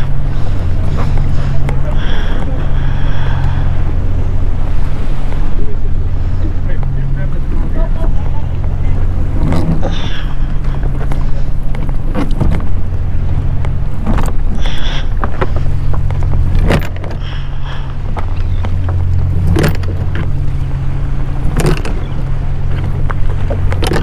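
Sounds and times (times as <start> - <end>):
boat engine idling: 0.0 - 24.0
anchor line knocks and scrapes: 9.3 - 12.8, 13.6 - 17.4, 18.0 - 20.4, 21.4 - 22.1, 22.7 - 24.0.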